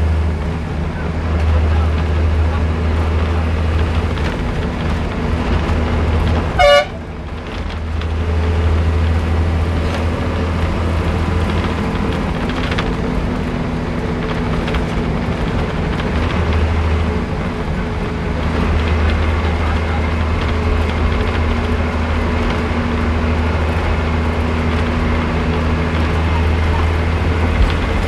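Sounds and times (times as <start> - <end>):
bus engine running: 0.0 - 28.0
loud horn toot: 6.6 - 7.0.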